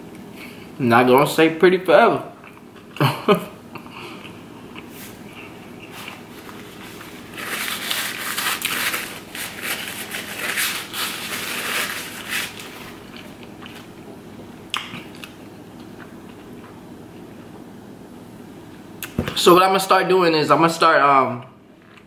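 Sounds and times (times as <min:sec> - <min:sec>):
food crackling and crinkling: 0:03.9 - 0:14.1.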